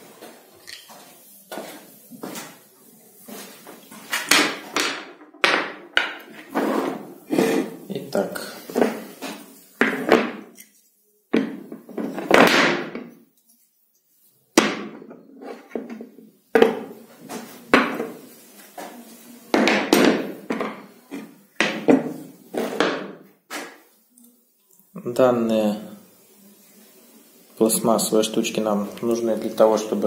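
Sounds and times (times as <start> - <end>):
plastic parts knocking on worktop: 4.2 - 6.4, 11.3 - 13.1.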